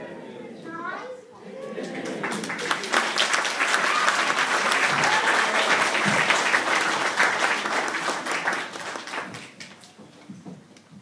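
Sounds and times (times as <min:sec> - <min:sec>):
audience clapping: 0:01.8 - 0:10.0.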